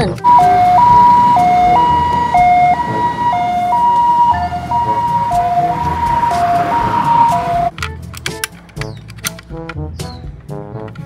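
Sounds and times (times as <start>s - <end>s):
ambulance siren two-tone: 0.2s - 7.7s.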